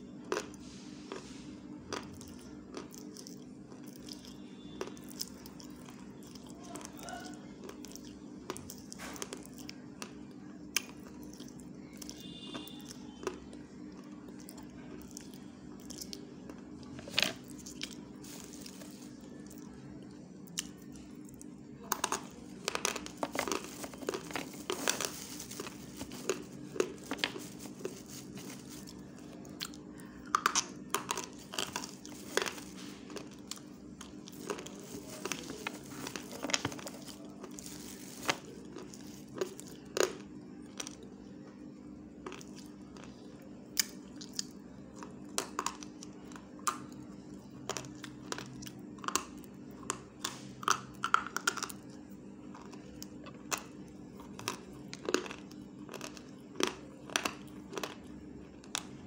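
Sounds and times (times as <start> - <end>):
steady low hum: 0.0 - 59.0
person chewing food: 0.2 - 1.3, 1.9 - 41.5, 42.2 - 59.0.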